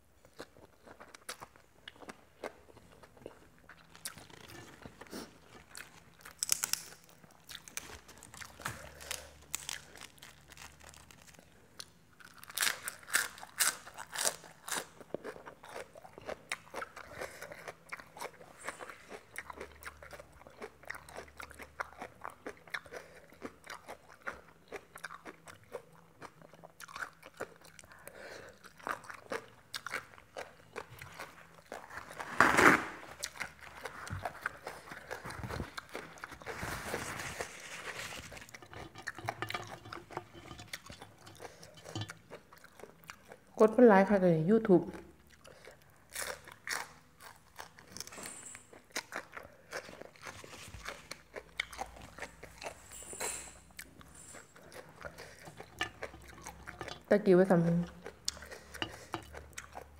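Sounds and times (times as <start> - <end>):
wet chewing and crunching: 0.2 - 43.8, 44.7 - 59.9
tissue being pulled out: 36.5 - 38.4.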